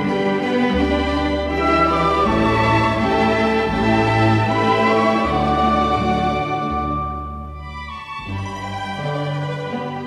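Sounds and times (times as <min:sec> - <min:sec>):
orchestral strings slow melody: 0:00.0 - 0:10.0.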